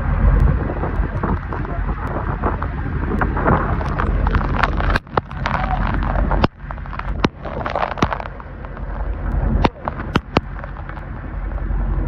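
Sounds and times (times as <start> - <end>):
diesel engine rumbling: 0.0 - 12.0
wind buffeting microphone: 0.0 - 12.0
sharp crackles and knocks: 0.2 - 12.0.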